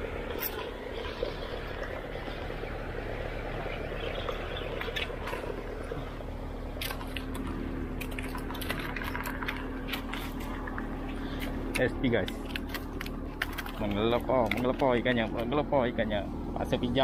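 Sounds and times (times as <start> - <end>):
steady low rumble: 0.0 - 17.0
clicks and crunches on gravel: 6.6 - 15.6.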